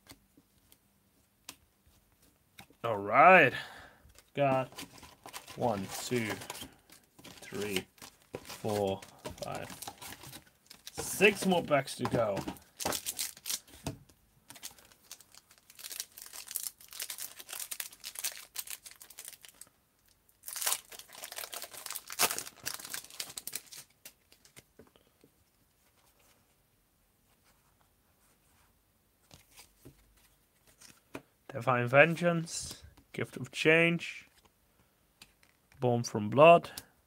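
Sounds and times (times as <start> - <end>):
wrapper tearing and crinkling: 4.7 - 11.4, 12.6 - 13.7, 14.5 - 19.7, 20.4 - 24.6.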